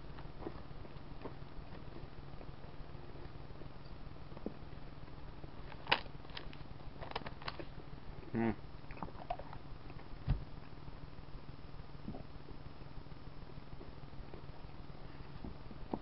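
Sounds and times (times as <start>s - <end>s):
steady low hum: 0.0s - 16.0s
person humming: 8.2s - 8.6s
clicks and chewing mouth noises: 8.9s - 10.0s
low thump: 10.2s - 10.5s.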